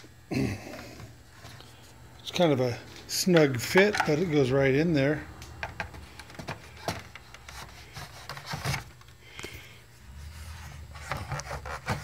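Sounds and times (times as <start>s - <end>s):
rubbing on wooden box: 10.2s - 12.0s.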